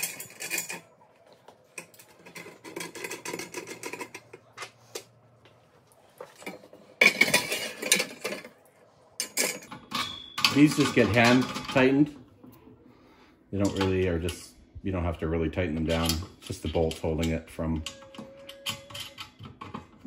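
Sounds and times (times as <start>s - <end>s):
metal parts clinking and tapping: 0.0s - 0.9s, 1.8s - 5.1s, 6.4s - 8.5s, 9.2s - 12.0s, 15.8s - 20.0s.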